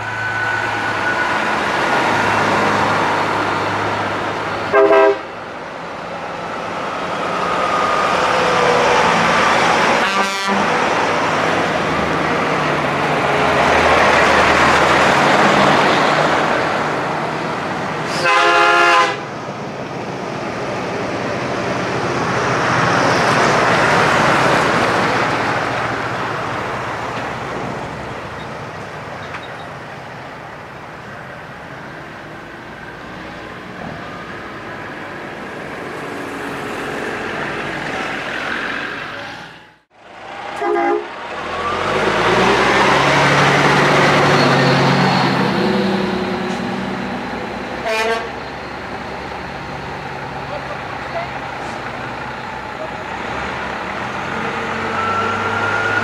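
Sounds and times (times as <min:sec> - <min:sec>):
trucks driving past: 0:00.0 - 0:56.0
truck horn blast: 0:04.7 - 0:05.3, 0:10.0 - 0:10.8, 0:18.1 - 0:19.3, 0:40.5 - 0:41.2, 0:47.8 - 0:48.4.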